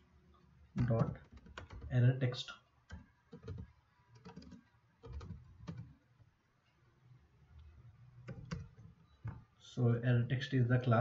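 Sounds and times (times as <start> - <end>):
faint keyboard typing: 0.8 - 2.1, 2.9 - 6.0, 7.5 - 9.4.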